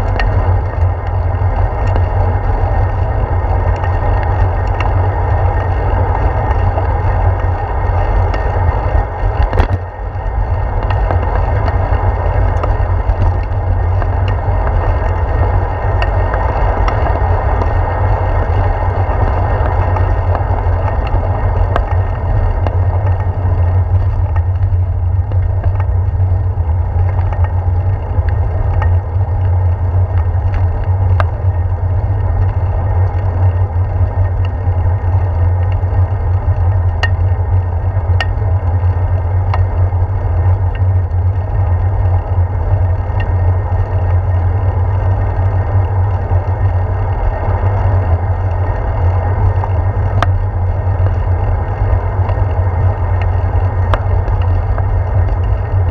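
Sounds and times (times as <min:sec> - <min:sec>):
bicycle clicks and rattles: 0:00.0 - 0:55.9
tyres on pavement: 0:00.0 - 0:55.9
wind rumble: 0:00.0 - 0:55.9.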